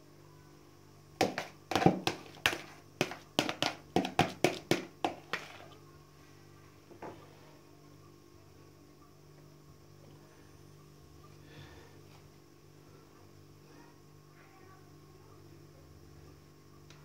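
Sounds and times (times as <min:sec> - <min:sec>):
metal spatula tapping plastic bowl: 0:01.2 - 0:05.7.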